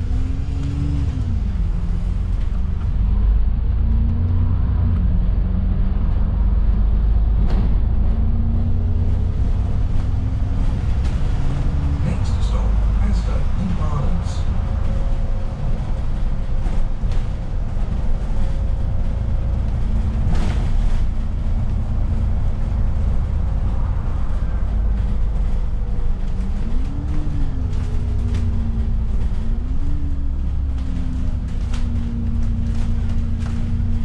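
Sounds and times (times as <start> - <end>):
bus engine rumble: 0.0 - 34.0
drivetrain whine: 0.0 - 34.0
knocks and rattles: 14.4 - 34.0.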